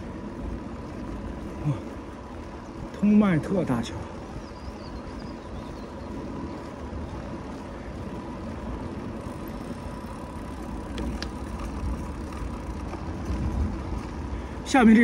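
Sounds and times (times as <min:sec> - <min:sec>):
wind and road noise: 0:00.0 - 0:15.0
faint clicks: 0:10.8 - 0:13.4.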